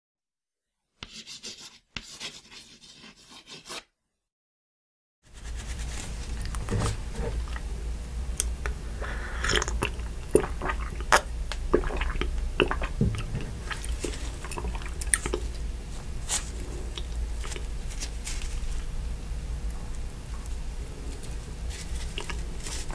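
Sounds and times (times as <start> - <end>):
low steady hum: 5.3 - 22.9
mouth clicks and chewing: 9.4 - 15.6, 16.3 - 17.8, 21.2 - 22.9.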